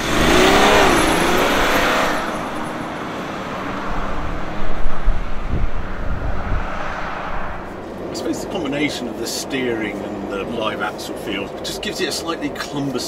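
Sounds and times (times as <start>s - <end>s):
vehicle driving past: 0.0s - 8.4s
low rumbling with heavy thumps: 3.9s - 8.1s.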